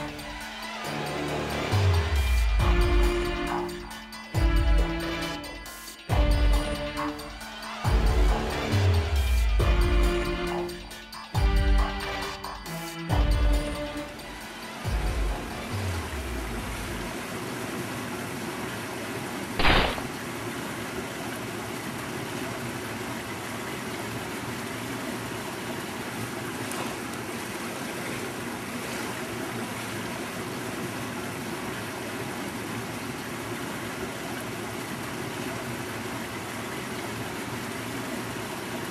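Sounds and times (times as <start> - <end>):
running water rushing: 0.0 - 10.8, 13.6 - 38.9
short loud water burst: 19.6 - 20.3.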